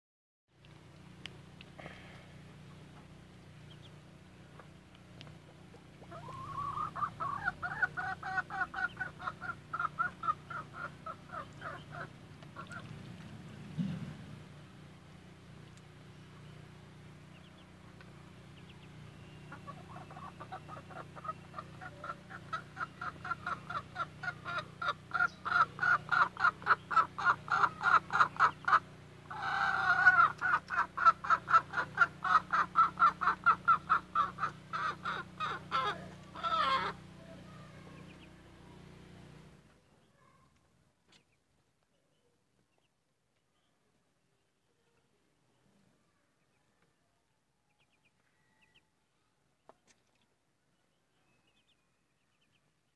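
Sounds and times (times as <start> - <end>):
hen clucking: 3.7 - 13.3, 18.5 - 38.4
hen squawk: 6.0 - 12.9, 19.5 - 38.3.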